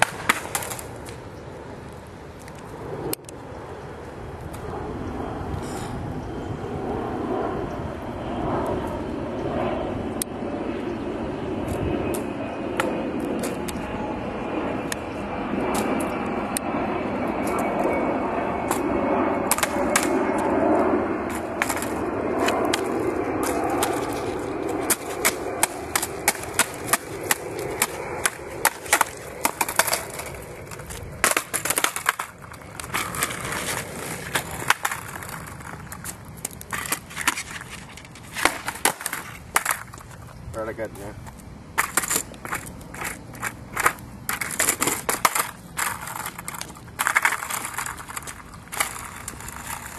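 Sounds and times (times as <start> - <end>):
skateboard wheels rolling on asphalt: 0.0 - 49.9
skateboard clacks and knocks: 24.8 - 36.0, 41.8 - 49.9.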